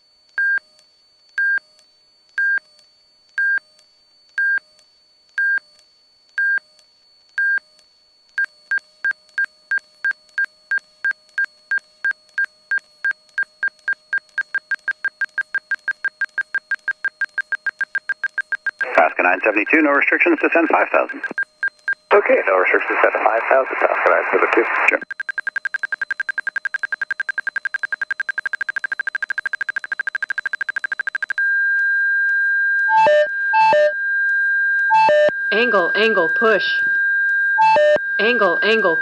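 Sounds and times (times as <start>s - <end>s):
stall warning beeping: 25.0s - 39.0s.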